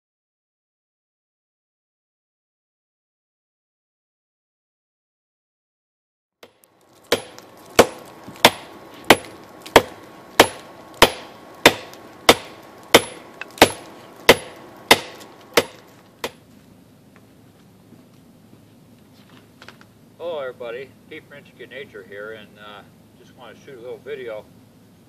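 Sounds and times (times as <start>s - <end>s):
hammer striking hot steel on anvil: 6.4s - 16.4s.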